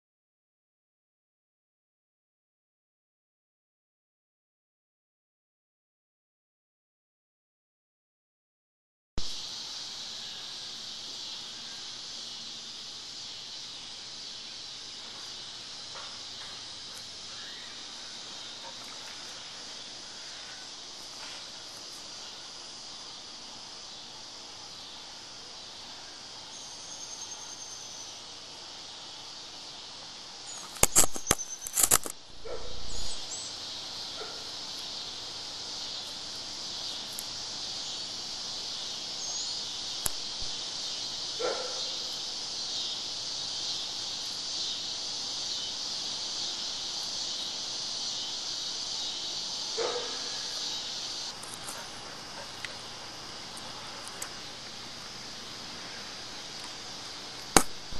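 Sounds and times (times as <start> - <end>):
cicadas droning: 9.2 - 57.9.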